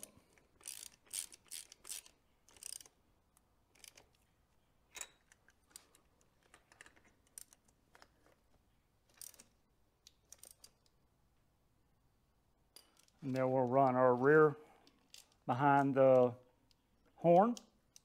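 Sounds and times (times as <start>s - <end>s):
ratchet clicks: 0.0s - 3.0s, 3.7s - 4.2s.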